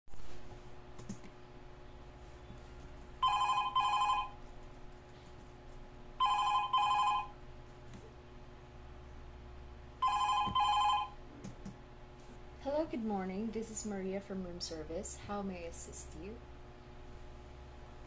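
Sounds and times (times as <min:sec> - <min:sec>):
telephone double ring: 0:03.2 - 0:04.3, 0:06.2 - 0:07.3, 0:10.0 - 0:11.1.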